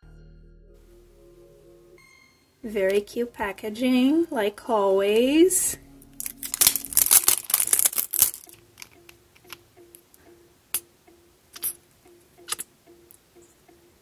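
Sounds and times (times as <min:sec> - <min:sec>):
packaging tearing and crinkling: 0:06.2 - 0:08.6
tube clicks: 0:06.2 - 0:10.8, 0:12.4 - 0:13.2.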